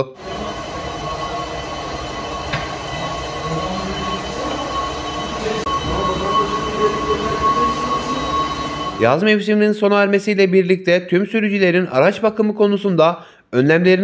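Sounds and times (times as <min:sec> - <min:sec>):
machinery rumble with high whine: 0:00.0 - 0:09.2.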